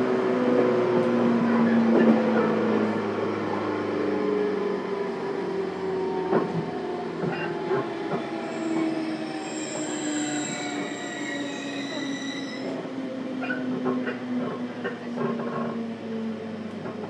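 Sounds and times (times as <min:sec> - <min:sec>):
train motor and gear hum: 0:00.0 - 0:17.0
rail joint clicks: 0:01.0 - 0:02.5, 0:06.2 - 0:09.0, 0:10.2 - 0:15.8, 0:16.6 - 0:17.0
high wheel squeal: 0:08.4 - 0:12.8.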